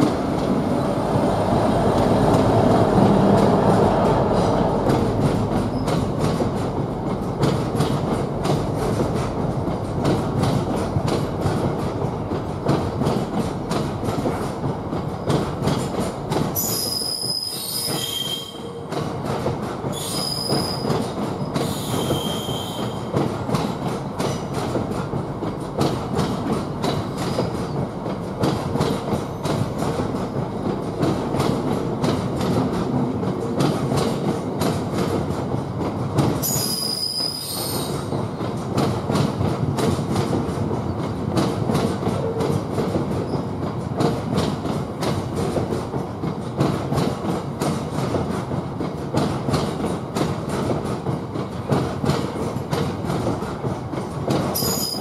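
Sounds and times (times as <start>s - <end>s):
diesel locomotive engine rumble: 0.0s - 36.4s
train wheels clicking over rail joints: 0.0s - 55.0s
high-pitched wheel squeal: 16.6s - 18.8s, 21.7s - 23.0s, 36.4s - 37.9s.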